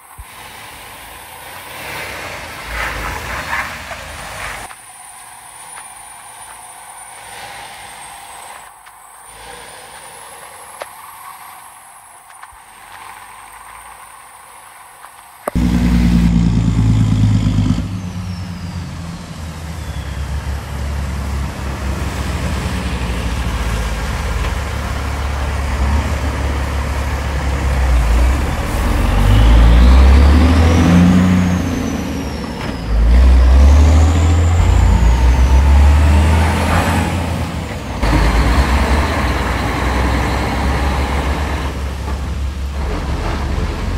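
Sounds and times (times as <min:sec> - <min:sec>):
diesel trucks driving past: 0:00.0 - 0:43.9
high whistling tone: 0:15.9 - 0:20.7, 0:28.6 - 0:37.2.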